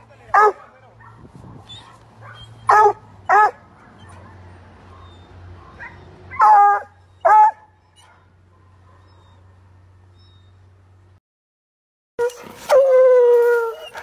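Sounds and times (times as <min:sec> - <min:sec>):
dog barking: 0:00.3 - 0:09.7.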